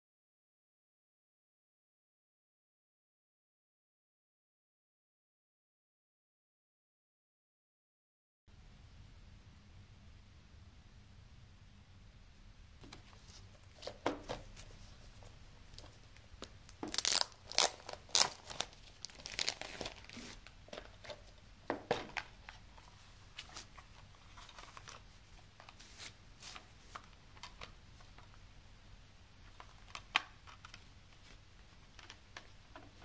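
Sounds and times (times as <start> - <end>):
plastic wrap crinkling: 12.8 - 27.8.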